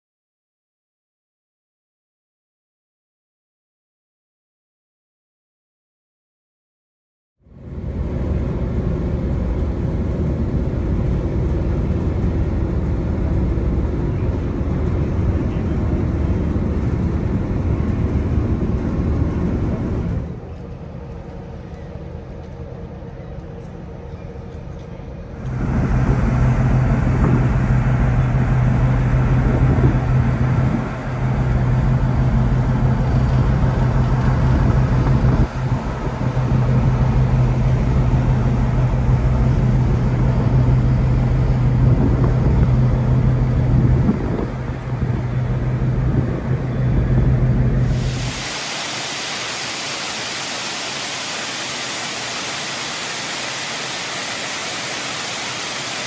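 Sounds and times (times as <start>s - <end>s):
low engine hum: 7.4s - 56.0s
wind rushing: 47.8s - 56.0s.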